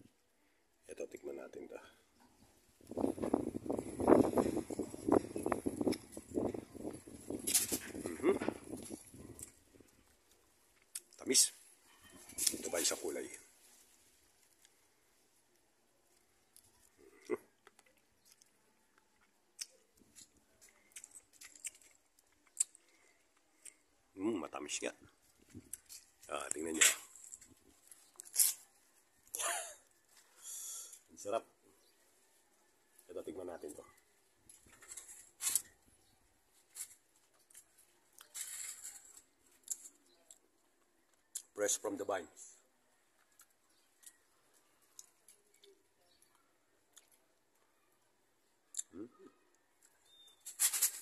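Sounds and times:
person chewing grapes: 0:04.6 - 0:11.2, 0:16.1 - 0:24.1, 0:25.1 - 0:30.9, 0:36.8 - 0:41.6, 0:43.0 - 0:47.6, 0:48.6 - 0:50.4
mouth clicks: 0:19.2 - 0:19.9, 0:20.9 - 0:23.8, 0:48.7 - 0:49.5.

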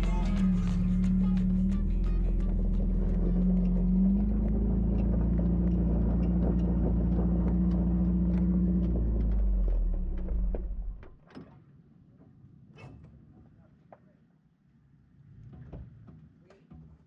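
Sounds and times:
vehicle engine rumbling: 0:00.0 - 0:11.1.

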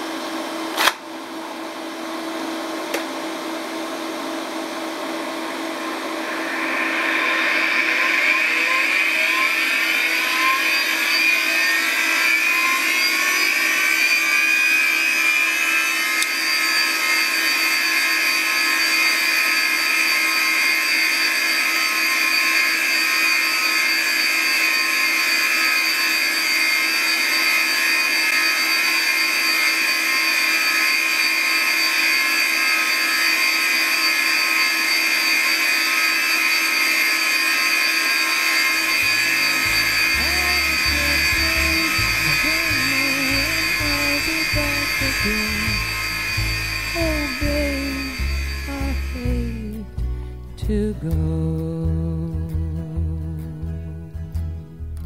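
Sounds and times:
hard drive whine: 0:00.0 - 0:51.6
low hum: 0:04.4 - 0:16.3, 0:38.9 - 0:55.0.

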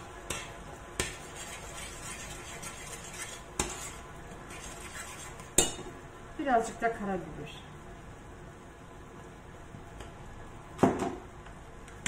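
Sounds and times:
metal spoon scraping a saucepan: 0:01.2 - 0:05.5.

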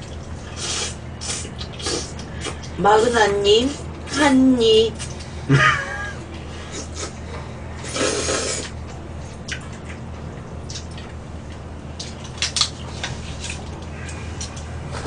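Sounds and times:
noodle slurp: 0:00.4 - 0:02.6, 0:07.8 - 0:08.8.

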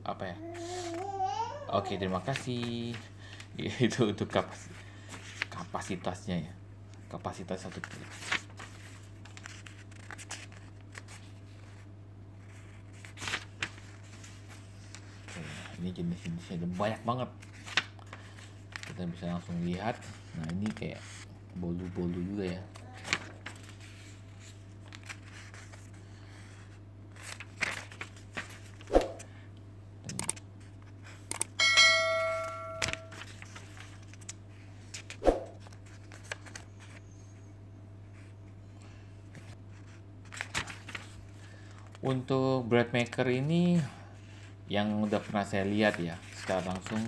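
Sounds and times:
book pages turning: 0:05.0 - 0:05.7, 0:07.6 - 0:16.3, 0:17.4 - 0:21.3, 0:21.9 - 0:29.3, 0:32.5 - 0:37.2, 0:39.3 - 0:42.0, 0:44.9 - 0:47.0.

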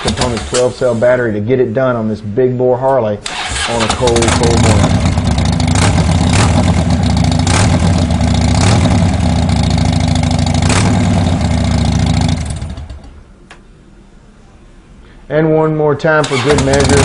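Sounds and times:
engine pops: 0:03.3 - 0:08.0, 0:16.2 - 0:17.0
motorcycle engine running: 0:03.5 - 0:13.2, 0:16.3 - 0:17.0
small click: 0:13.4 - 0:13.7.

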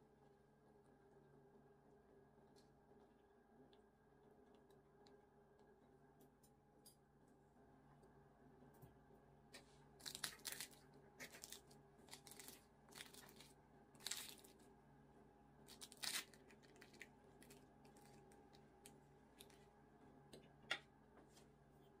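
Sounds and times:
pastry crackling and crunching: 0:09.8 - 0:14.7, 0:15.6 - 0:19.8.

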